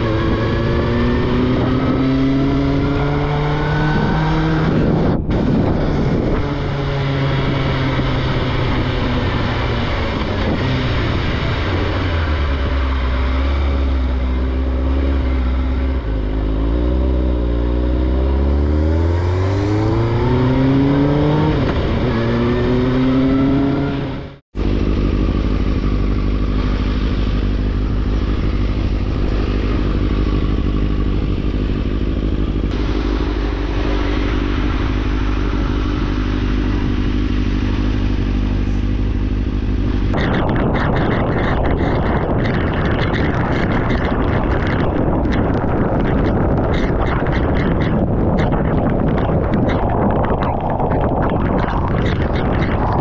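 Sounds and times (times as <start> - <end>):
motorcycle engine revving: 0.0 - 53.0.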